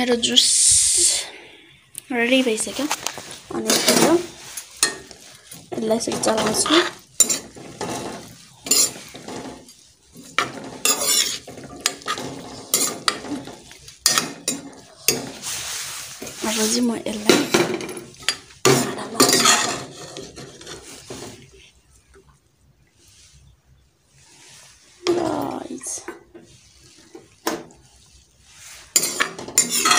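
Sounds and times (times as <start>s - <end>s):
light frying sizzle: 2.0s - 29.9s
noodles tossed with ladle in wok: 2.4s - 21.6s, 24.1s - 29.9s
metal spoon scraping metal pot: 3.0s - 15.6s, 16.2s - 21.2s, 25.0s - 29.9s.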